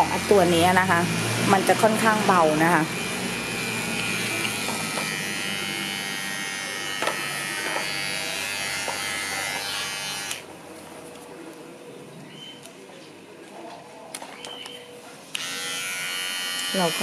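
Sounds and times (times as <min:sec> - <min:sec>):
electric pet trimmer buzzing: 0:00.0 - 0:10.4, 0:15.3 - 0:17.0.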